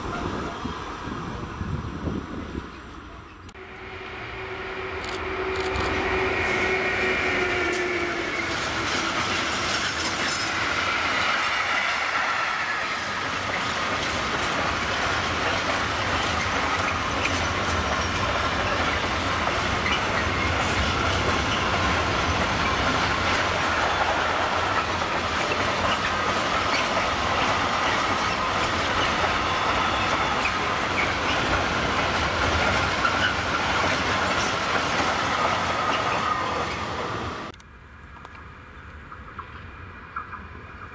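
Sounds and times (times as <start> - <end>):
freight train rumble and clatter: 0.0 - 40.9
high wheel squeal: 28.2 - 31.7, 33.0 - 33.5.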